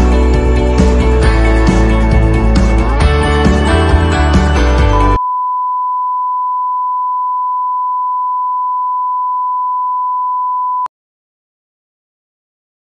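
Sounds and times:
music: 0.0s - 5.2s
steady test tone beep: 5.2s - 10.9s.

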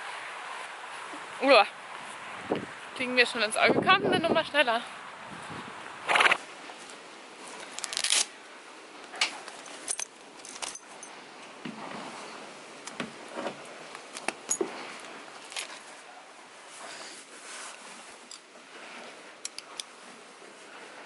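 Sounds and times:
fabric rustling: 6.7s - 8.4s, 13.2s - 21.0s
metal buckles clinking: 9.1s - 11.2s, 14.0s - 15.9s.

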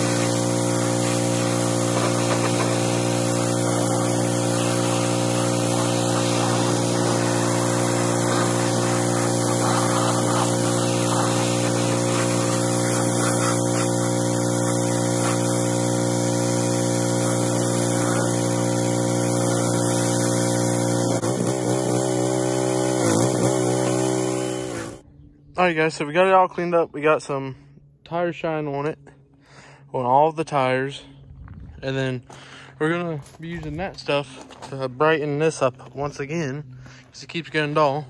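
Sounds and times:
pressure washer motor: 0.0s - 25.0s
spray hissing: 0.0s - 25.0s.

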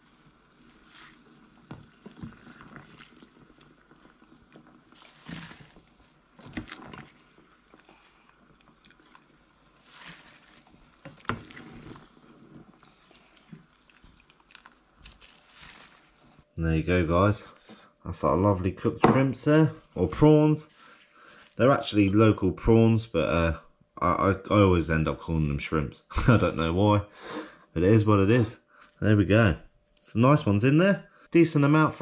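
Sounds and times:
water splashing and dripping: 0.0s - 16.2s
water boiling in a pot: 0.0s - 16.5s.

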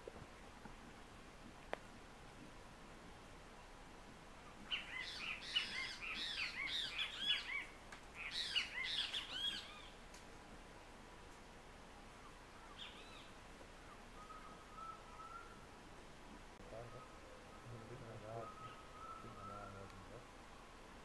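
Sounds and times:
birds chattering calls: 4.7s - 10.0s, 16.7s - 20.2s.

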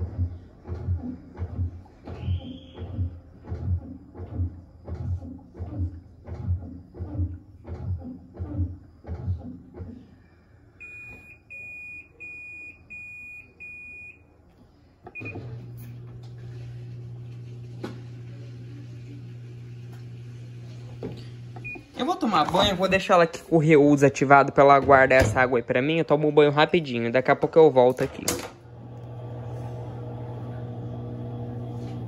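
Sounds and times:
motor humming: 15.2s - 21.9s, 28.6s - 32.0s
washing machine thudding: 24.6s - 25.7s.

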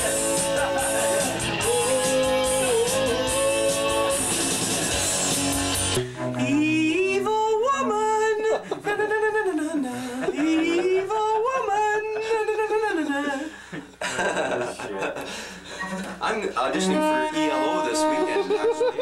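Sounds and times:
band music with sung note: 0.0s - 8.2s, 16.8s - 19.0s.

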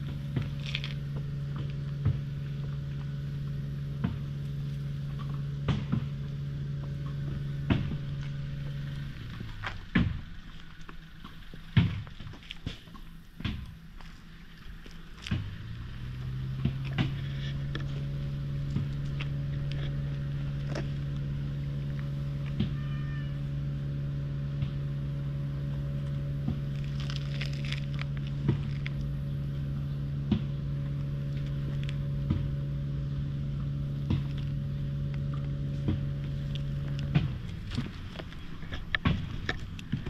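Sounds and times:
steady low hum: 0.0s - 40.0s
cat meow: 22.7s - 23.4s.

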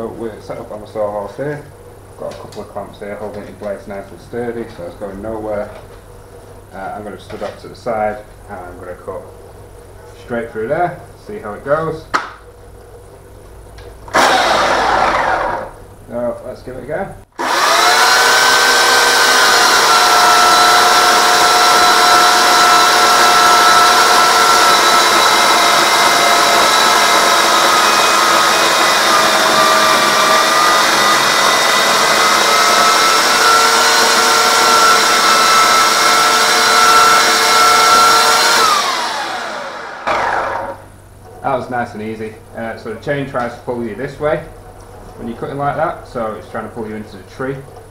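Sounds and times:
electric chainsaw cutting log: 14.1s - 15.8s, 17.4s - 40.9s.

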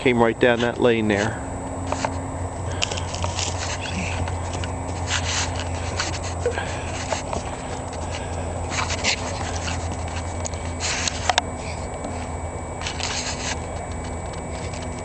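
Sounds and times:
animal rustling: 1.8s - 15.0s.

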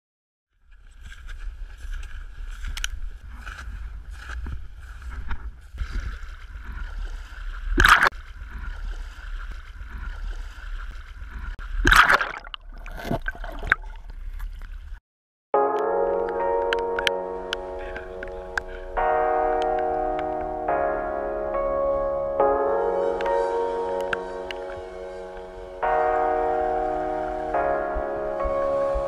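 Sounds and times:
boots crunching through snow: 0.8s - 7.6s.

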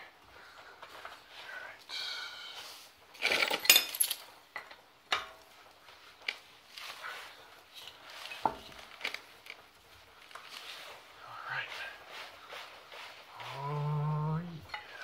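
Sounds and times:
metal bolts clinking and rattling: 3.2s - 5.4s.

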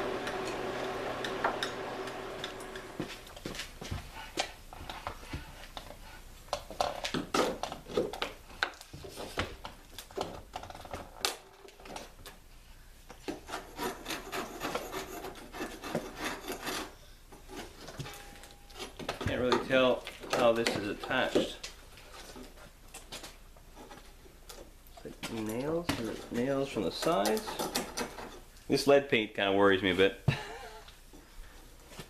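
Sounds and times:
scraper scraping paint from wood: 13.4s - 17.8s.

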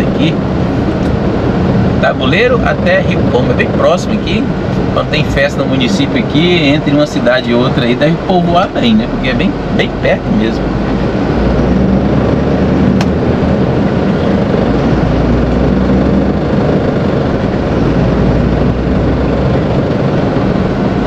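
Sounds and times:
road noise: 0.0s - 21.0s
truck diesel engine: 0.0s - 21.0s
sharp click: 13.0s - 13.2s.

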